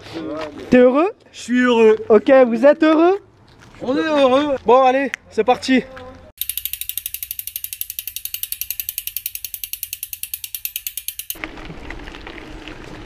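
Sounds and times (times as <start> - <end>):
bicycle freehub clicking: 6.4 - 11.5.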